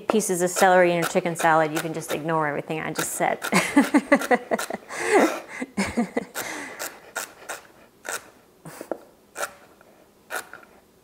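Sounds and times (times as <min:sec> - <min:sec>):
knife cutting celery on board: 0:00.1 - 0:04.8, 0:06.3 - 0:08.4, 0:09.4 - 0:09.7, 0:10.3 - 0:10.7.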